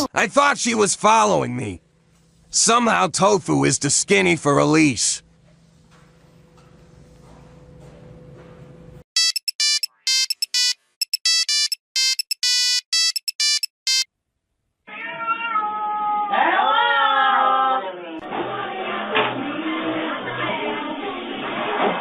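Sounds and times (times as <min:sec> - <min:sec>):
electronic beeping ringtone: 0:09.2 - 0:14.1
cat meowing: 0:14.9 - 0:17.4.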